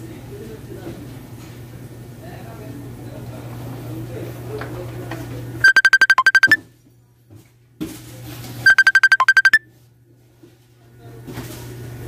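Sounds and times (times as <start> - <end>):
electronic beeps: 5.6 - 6.6, 8.7 - 9.6.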